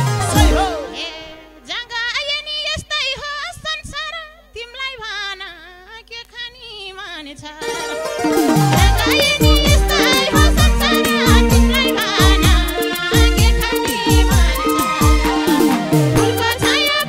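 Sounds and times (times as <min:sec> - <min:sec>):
band playing: 0:00.0 - 0:01.6, 0:07.6 - 0:17.0
woman singing folk song: 0:00.3 - 0:07.9, 0:08.7 - 0:17.0
drum strokes: 0:08.1 - 0:17.0.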